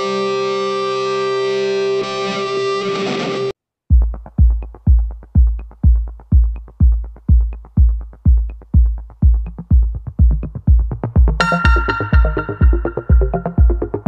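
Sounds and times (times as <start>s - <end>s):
deep kick drum: 3.9s - 14.0s.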